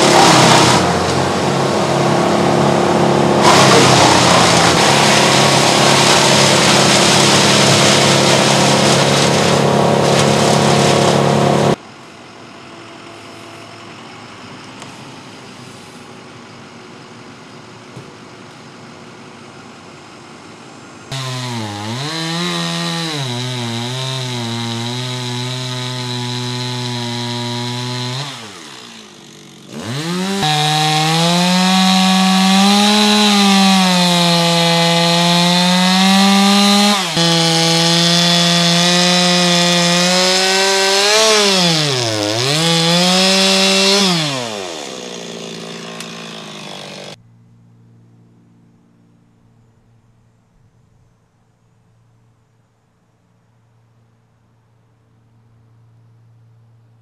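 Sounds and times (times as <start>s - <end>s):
chainsaw cutting wood: 0.0s - 11.8s, 21.1s - 47.2s.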